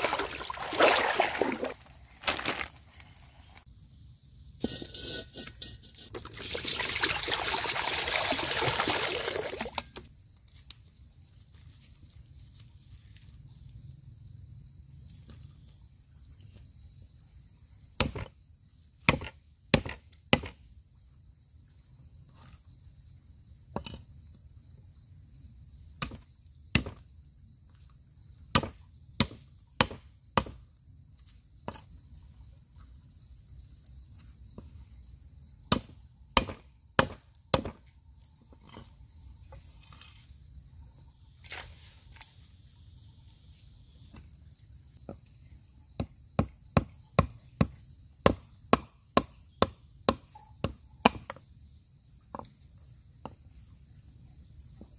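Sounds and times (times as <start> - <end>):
cleaver chopping on wooden board: 28.5 - 30.6, 35.7 - 37.8.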